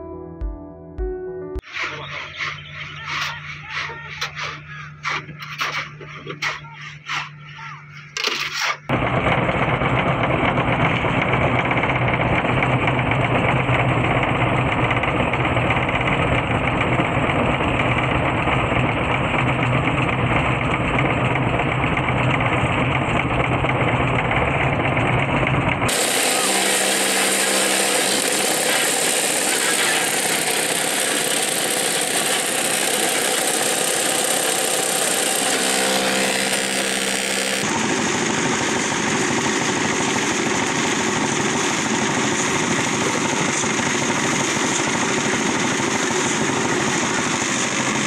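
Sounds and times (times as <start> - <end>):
machinery rattling hum: 17.7 - 48.0.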